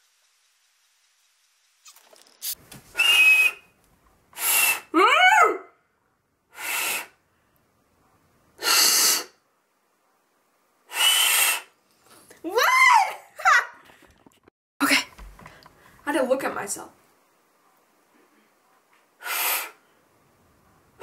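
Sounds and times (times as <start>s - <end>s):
breathy whistle attempts: 3.0s - 3.7s, 4.4s - 4.9s, 10.9s - 11.7s.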